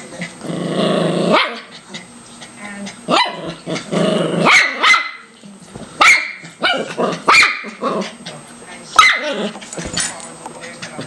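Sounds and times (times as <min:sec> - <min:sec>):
small dog barking: 0:04.4 - 0:05.3, 0:06.0 - 0:07.8, 0:09.0 - 0:09.4.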